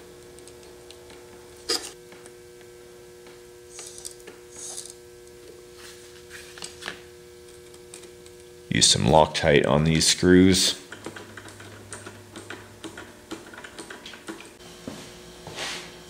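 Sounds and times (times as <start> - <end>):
small parts clicking and rubbing: 3.7 - 5.0.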